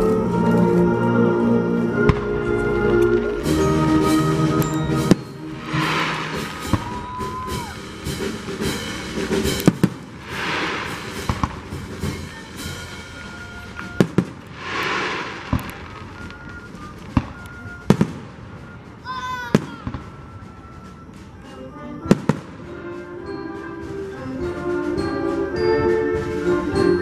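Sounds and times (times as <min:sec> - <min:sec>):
fireworks bangs: 0:04.6 - 0:20.5
fireworks hissing: 0:04.9 - 0:19.2.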